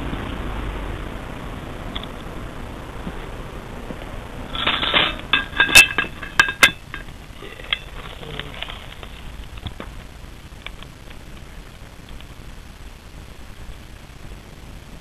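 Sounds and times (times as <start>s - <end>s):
steady hiss: 0.0s - 15.0s
metal lid scraping: 4.5s - 7.1s.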